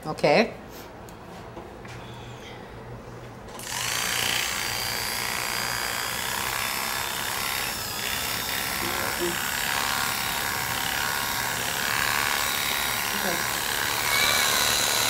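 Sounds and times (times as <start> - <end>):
electric clippers buzzing: 3.6 - 15.0.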